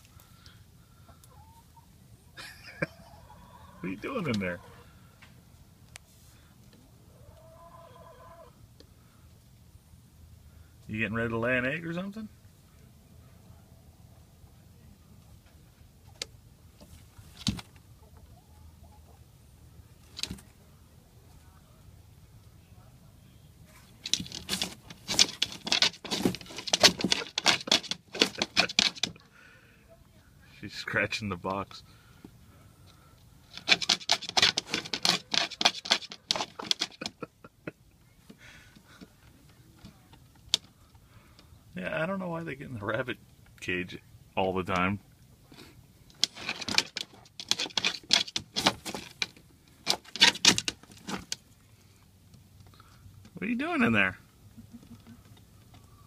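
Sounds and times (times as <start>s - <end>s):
hen scratching cardboard: 23.7s - 29.2s, 33.5s - 37.3s, 46.2s - 49.3s.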